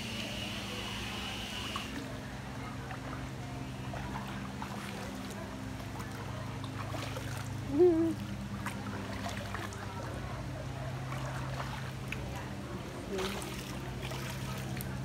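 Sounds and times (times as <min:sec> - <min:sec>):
faint trickling water: 0:00.0 - 0:15.0
low mechanical hum: 0:00.0 - 0:15.0
person humming: 0:07.7 - 0:08.2.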